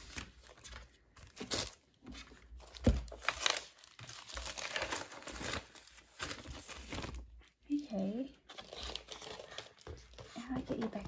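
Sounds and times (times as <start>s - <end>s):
plastic sleeve crinkling: 2.6s - 7.5s.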